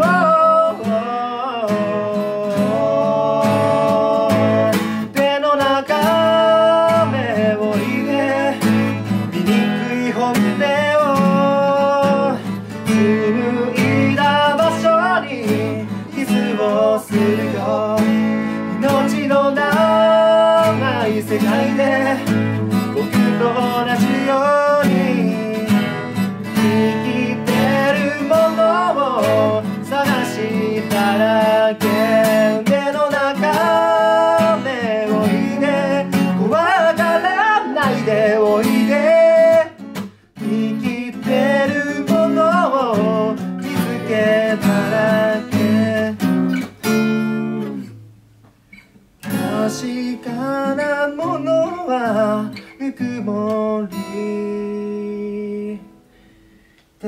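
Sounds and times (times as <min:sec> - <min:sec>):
man singing: 0:00.0 - 0:47.9, 0:49.3 - 0:56.1
acoustic guitars: 0:00.0 - 0:57.0.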